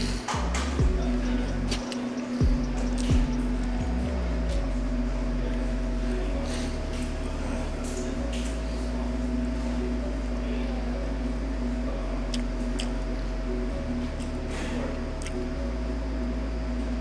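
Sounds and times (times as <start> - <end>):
steady room hum: 0.0 - 17.0
man chewing wet food: 12.3 - 13.0, 15.2 - 15.4.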